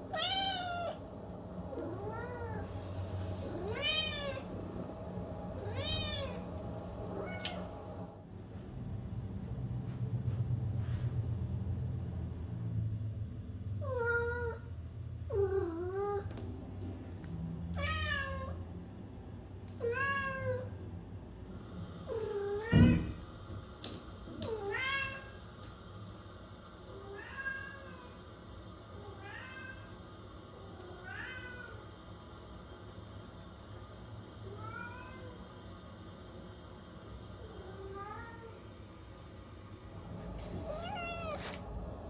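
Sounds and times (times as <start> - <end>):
cats meowing: 40.6 - 41.5.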